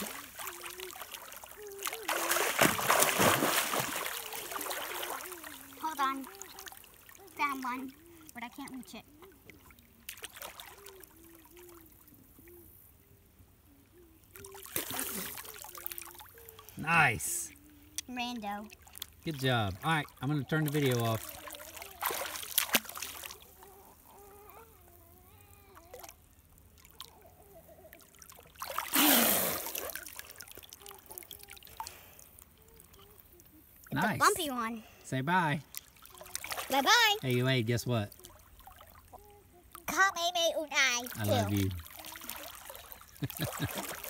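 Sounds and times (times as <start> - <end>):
water splashing off swimmer: 0.0 - 6.7
water trickling and dripping: 0.0 - 11.0, 14.4 - 24.6
river water lapping: 0.0 - 13.0, 13.6 - 44.0.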